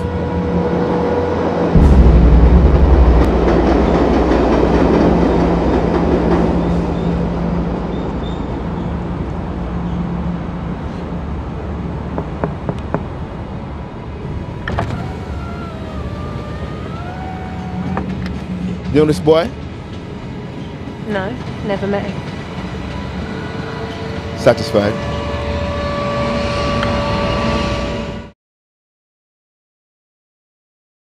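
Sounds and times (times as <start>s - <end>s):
heavy low vehicle rumble: 0.0s - 28.2s
steady low hum: 1.4s - 4.9s.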